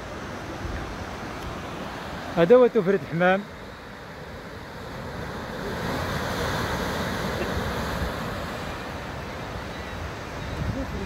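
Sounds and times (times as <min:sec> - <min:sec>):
wind rumbling on microphone: 0:09.8 - 0:11.0.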